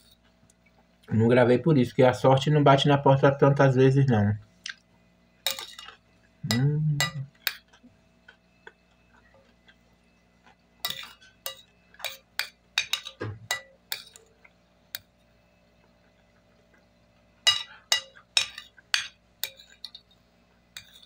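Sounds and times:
cutlery clinking on plate: 5.4 - 7.8, 10.8 - 14.3, 17.4 - 20.2, 20.8 - 21.0
person humming: 6.4 - 7.3.

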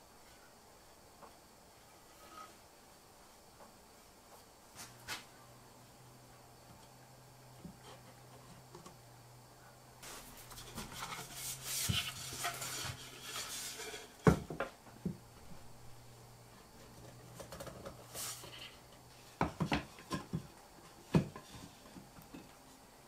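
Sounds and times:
wood rubbing and scraping: 1.8 - 2.6, 10.0 - 15.0.

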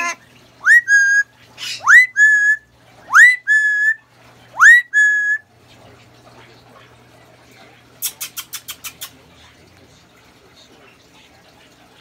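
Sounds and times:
parrot whistling: 0.6 - 4.0, 4.6 - 5.5.

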